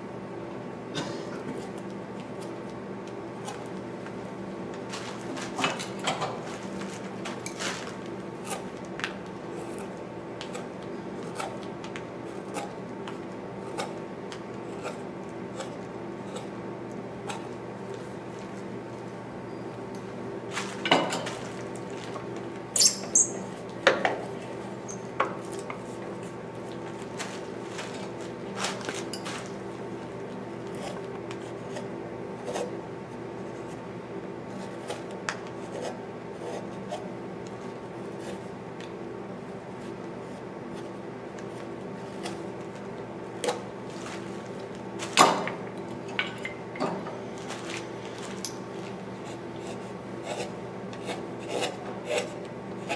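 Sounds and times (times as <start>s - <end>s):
steady low hum: 0.0s - 52.9s
knife scraping wood: 14.6s - 16.6s, 34.5s - 37.1s, 49.2s - 52.9s.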